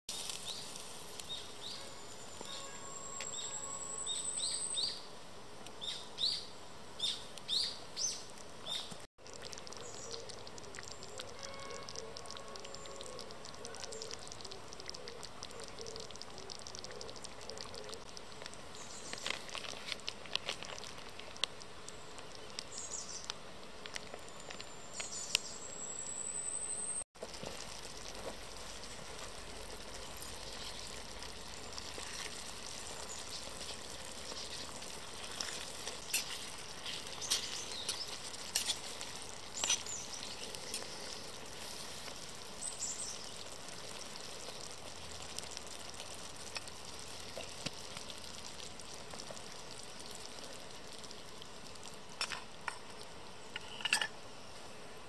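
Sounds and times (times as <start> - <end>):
food sizzling in frying pan: 0.1 - 4.9, 27.2 - 54.0.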